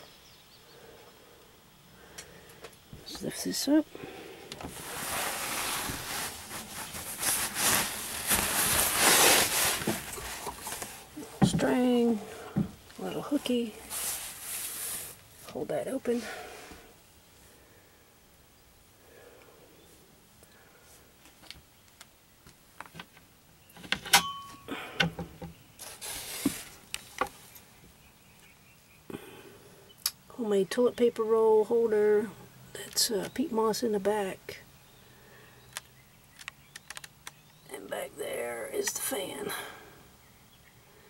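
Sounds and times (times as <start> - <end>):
cloth upholstery rustling: 4.6 - 16.3.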